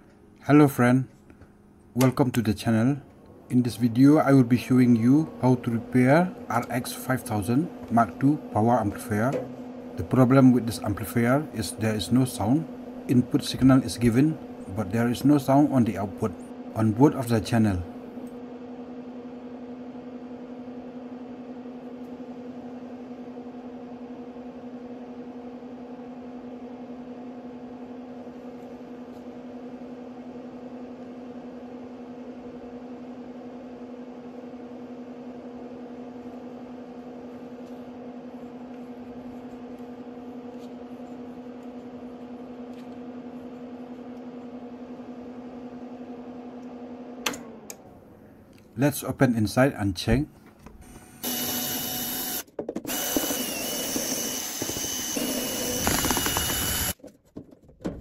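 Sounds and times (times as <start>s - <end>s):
amplifier hum: 0.0s - 24.8s.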